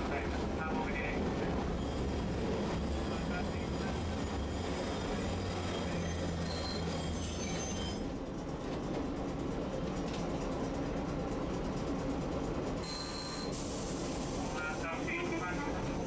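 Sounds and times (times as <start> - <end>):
streetcar wheels rumbling: 0.0 - 16.0.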